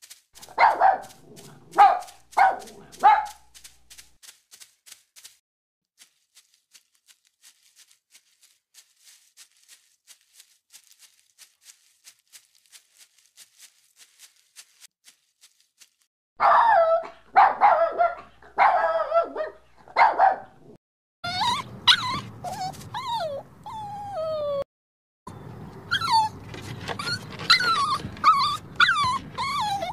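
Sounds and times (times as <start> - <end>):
puppy whining and yelping: 21.2 - 24.7, 25.8 - 29.9.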